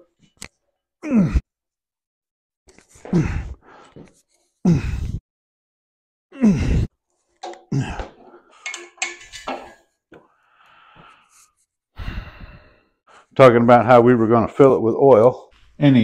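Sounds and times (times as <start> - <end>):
man grunting with effort: 1.0 - 1.4, 4.6 - 5.2, 6.3 - 6.9, 7.7 - 8.2
metal clanking and ringing: 7.4 - 9.8.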